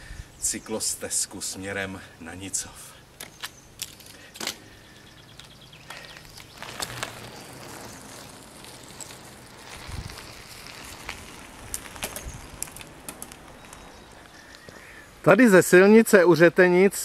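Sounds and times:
bike tyres rolling on asphalt: 0.8 - 15.8
bike drivetrain clicks: 3.2 - 14.9.

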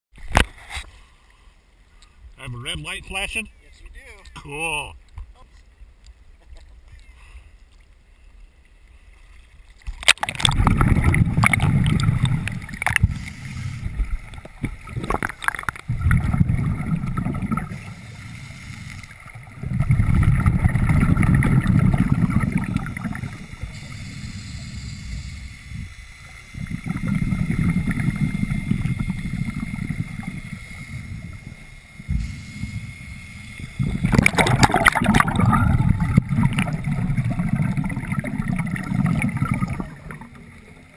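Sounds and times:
underwater exhaled bubbles: 9.8 - 40.9
regulator breathing: 12.9 - 14.6, 17.6 - 19.6, 23.1 - 34.2.

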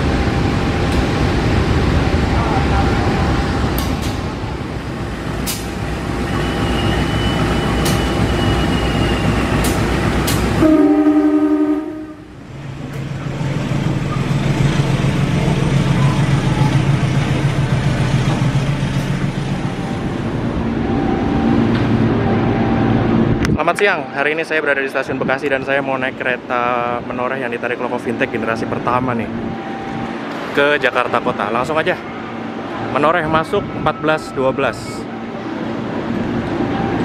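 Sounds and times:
train running on rails: 0.0 - 37.0
train horn blast: 10.6 - 12.3.

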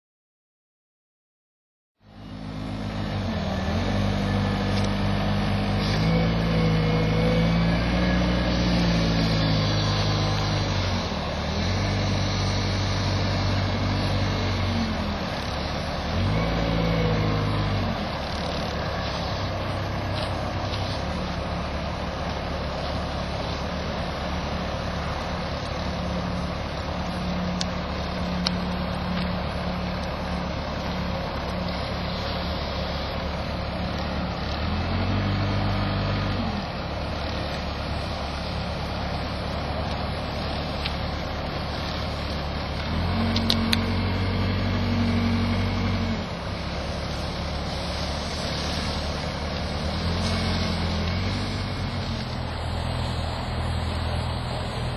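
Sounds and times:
wheel loader engine revving: 2.0 - 54.9.

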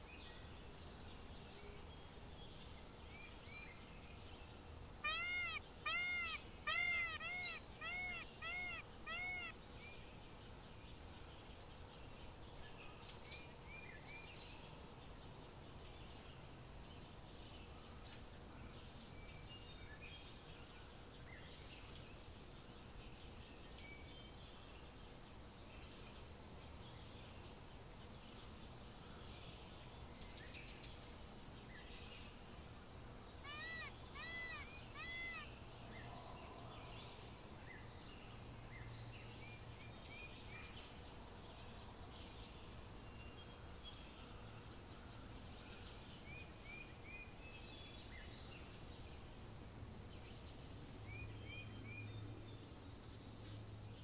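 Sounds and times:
outdoor background: 0.0 - 54.0
peafowl calling: 5.0 - 9.6, 33.4 - 35.5
faint bird chirps: 5.0 - 10.1, 33.4 - 40.8.

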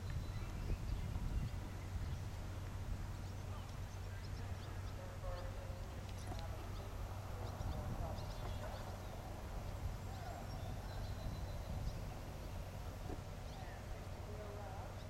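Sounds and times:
bird chirps: 0.0 - 15.0
distant calls: 0.0 - 15.0
low rumble: 0.0 - 15.0.

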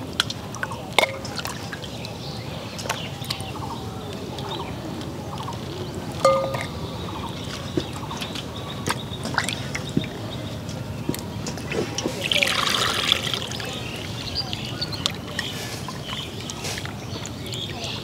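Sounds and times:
water splashing: 11.2 - 18.0.

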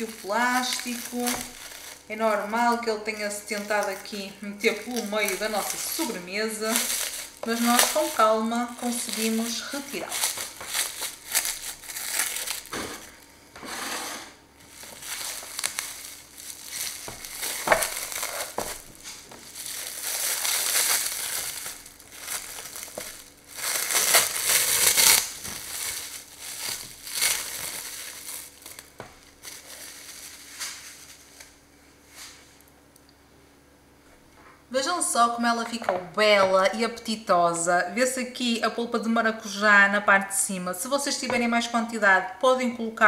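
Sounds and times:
plastic cling film crinkling: 0.0 - 13.4, 14.6 - 32.7.

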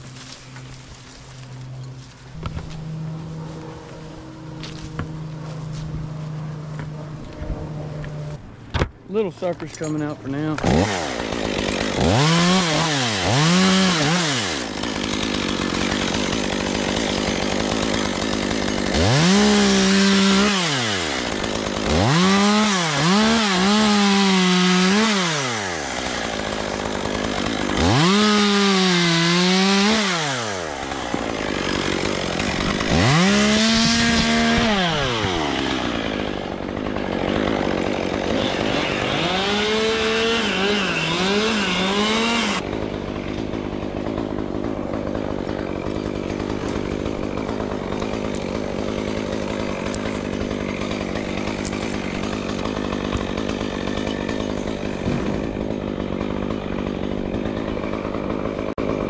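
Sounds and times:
chainsaw revving through wood: 0.0 - 8.4, 9.4 - 59.0.

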